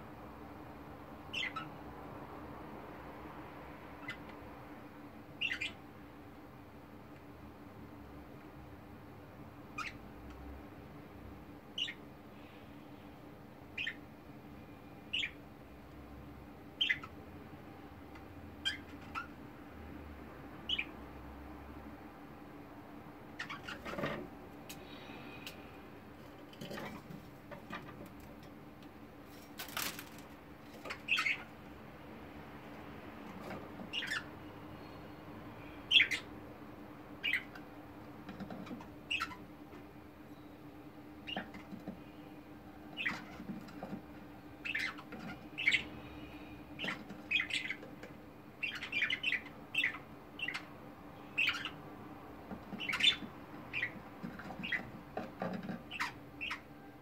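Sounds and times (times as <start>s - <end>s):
budgerigars chirping: 1.3s - 1.7s, 5.4s - 5.8s, 9.8s - 10.0s, 11.8s - 12.0s, 13.8s - 14.0s, 15.1s - 15.4s, 16.8s - 17.2s, 18.6s - 19.3s, 20.7s - 20.9s, 23.4s - 24.1s, 30.9s - 31.5s, 33.9s - 34.3s, 35.9s - 36.3s, 37.2s - 37.6s, 39.1s - 39.4s, 41.2s - 41.5s, 43.0s - 43.4s, 44.6s - 45.9s, 46.8s - 47.8s, 48.6s - 50.7s, 51.3s - 51.8s, 52.7s - 54.9s, 55.9s - 56.7s
wings fluttering: 29.3s - 31.0s.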